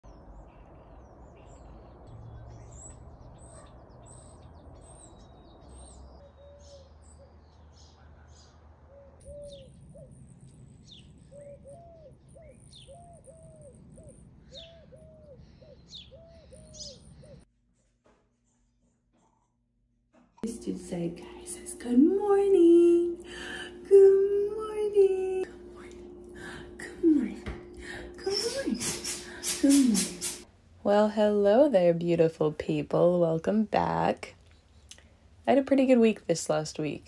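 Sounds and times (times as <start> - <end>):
songbirds chirping: 0.0 - 17.5, 20.4 - 37.0
low background hum: 20.2 - 37.0.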